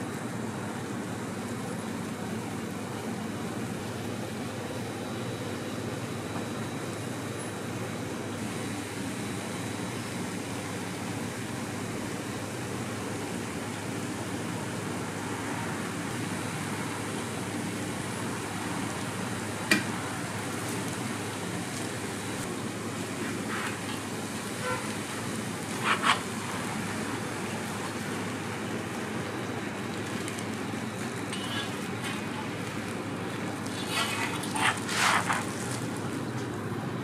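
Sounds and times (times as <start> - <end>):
batter sizzling on griddle: 8.4 - 36.4.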